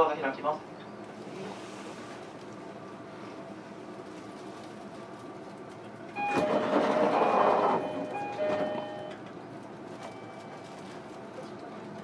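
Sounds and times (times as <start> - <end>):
sliding doors hissing and rumbling: 6.2 - 8.8
two-note door chime: 6.2 - 9.2.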